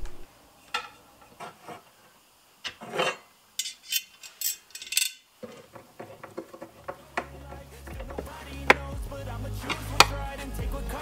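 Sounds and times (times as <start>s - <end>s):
sliding scrape: 1.3s - 2.0s, 2.7s - 4.6s
metal rail scrapes and knocks: 2.7s - 8.9s.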